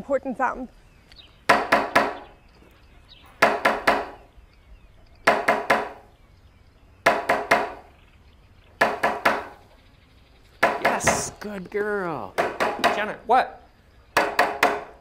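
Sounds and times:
knocking on a door: 3.4s - 4.2s, 5.3s - 6.0s, 7.0s - 7.8s, 8.8s - 9.5s, 10.6s - 11.3s, 12.4s - 13.1s.

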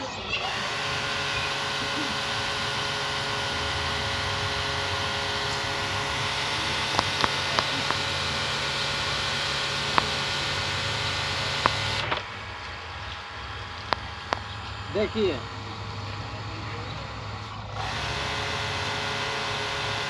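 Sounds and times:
electric water pump humming: 0.0s - 20.0s
sharp clicks: 0.4s - 16.2s
water jet hissing: 0.4s - 20.0s.

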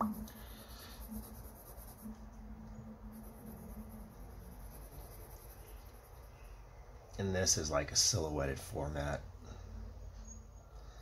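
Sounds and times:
pencil scratching on paper: 0.0s - 2.3s, 3.0s - 6.6s.

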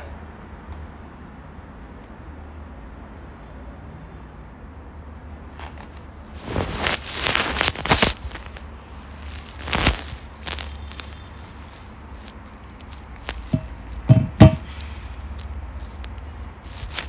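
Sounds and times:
phone handling knocks and rubbing: 13.5s - 14.7s.

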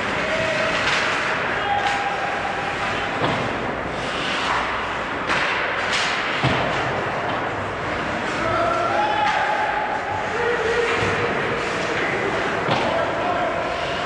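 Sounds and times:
hollow rink noise: 0.0s - 14.0s
skates scraping on ice: 0.0s - 14.0s
puck and sticks knocking: 0.1s - 3.7s, 4.3s - 7.6s, 10.8s - 13.2s.

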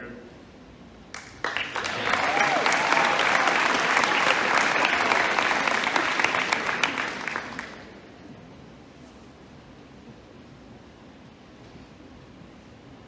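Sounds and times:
audience applause: 1.1s - 8.1s.

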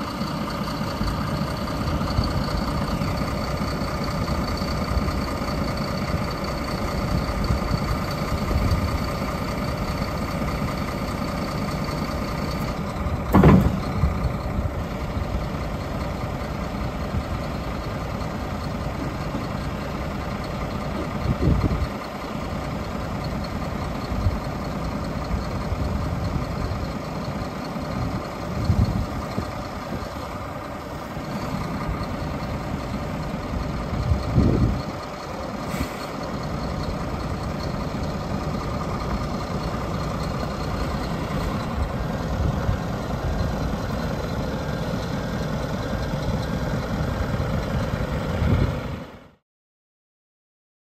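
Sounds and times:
diesel truck engine running: 0.0s - 49.4s
hydraulic whine: 12.6s - 14.3s
loud metal clunk: 13.3s - 14.2s
thuds: 13.3s - 14.2s.

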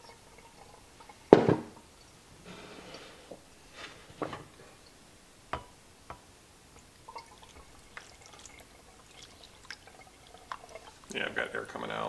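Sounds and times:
water pouring and splashing: 6.8s - 12.0s.

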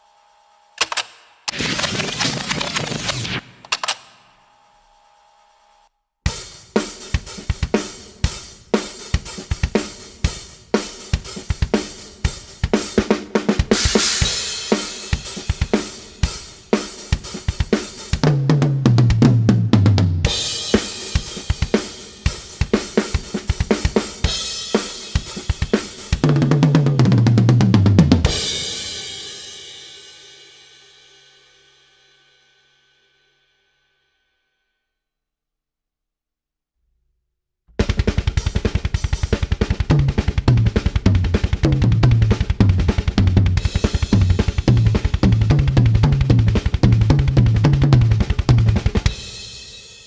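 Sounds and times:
kick and snare drum hits: 6.3s - 8.4s, 11.2s - 16.4s, 37.7s - 49.4s
cymbal washes: 13.7s - 18.2s.

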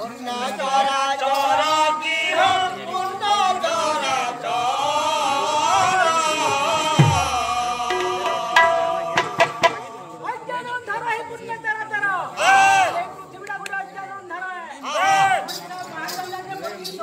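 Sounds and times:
men singing folk song: 0.0s - 10.7s
dhol drum strokes: 6.4s - 10.1s.

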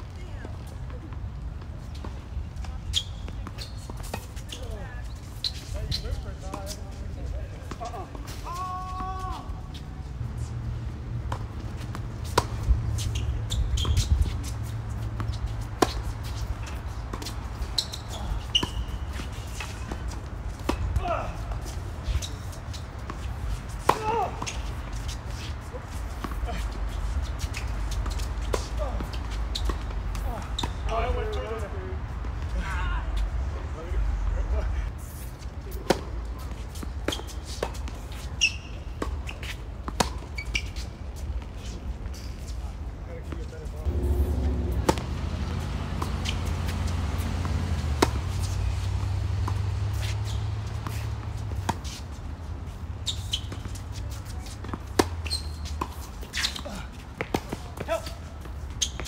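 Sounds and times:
shoe squeaks: 1.8s - 7.0s, 11.8s - 20.8s, 21.6s - 31.6s, 36.4s - 42.7s, 45.5s - 59.0s
tennis balls struck by rackets: 11.2s - 13.2s, 13.8s - 31.2s, 43.3s - 59.0s
tennis ball struck by rackets: 11.3s - 12.7s, 43.9s - 52.0s, 53.4s - 57.9s
steady low rumble: 43.8s - 48.3s.

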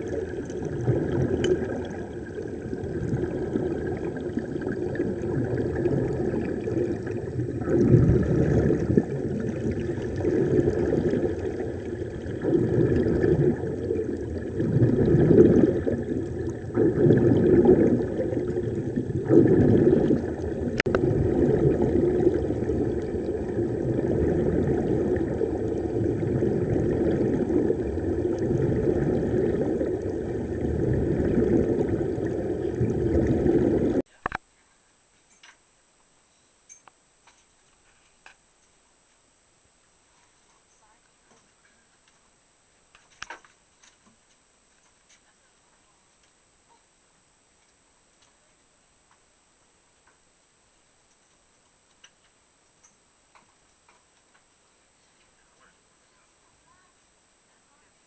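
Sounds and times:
underwater air bubbles gurgling: 0.0s - 34.1s
faint clicks: 51.0s - 55.8s.

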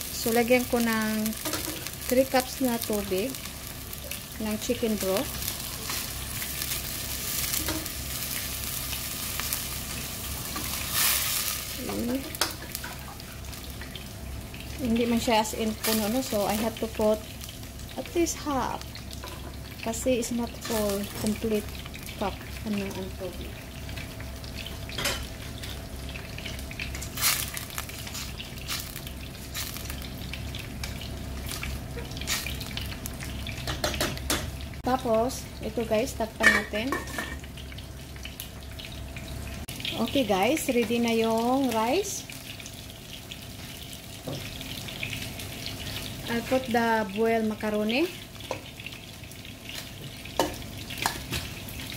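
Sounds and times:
broth sizzling in hot pan: 0.0s - 51.9s
low cooking noise: 0.0s - 51.9s.

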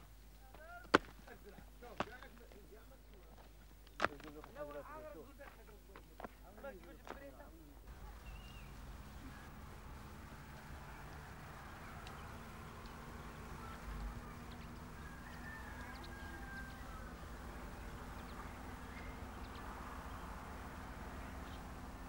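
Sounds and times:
distant bird calls: 7.9s - 22.0s.

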